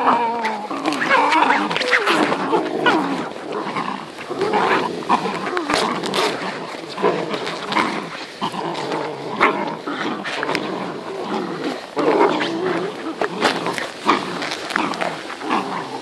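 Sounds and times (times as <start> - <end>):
puppies growling and yipping: 0.0 - 16.0.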